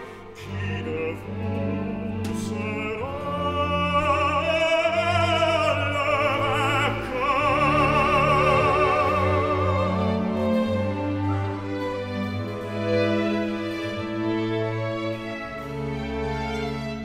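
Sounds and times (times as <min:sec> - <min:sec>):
operatic baritone singing: 0:00.0 - 0:11.6
orchestral strings: 0:00.0 - 0:17.0.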